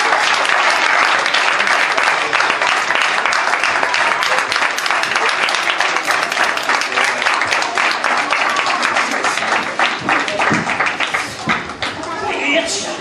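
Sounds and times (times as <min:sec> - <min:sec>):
crowd applauding: 0:00.0 - 0:12.5
voices: 0:03.6 - 0:13.0.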